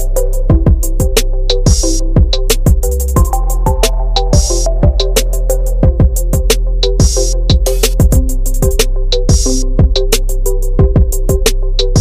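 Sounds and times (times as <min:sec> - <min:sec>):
beat-driven background music: 0:00.0 - 0:12.0.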